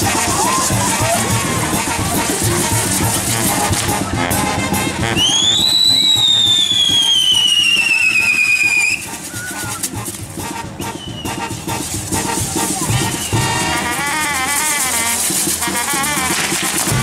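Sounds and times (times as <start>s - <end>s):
whistling firework: 0.0s - 1.5s, 5.0s - 11.9s, 12.6s - 17.0s
fireworks crackling and fizzing: 0.0s - 17.0s.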